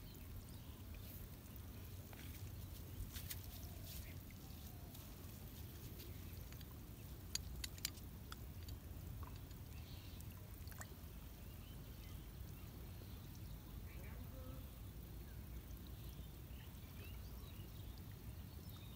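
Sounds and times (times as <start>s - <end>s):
small clicks: 6.4s - 9.6s.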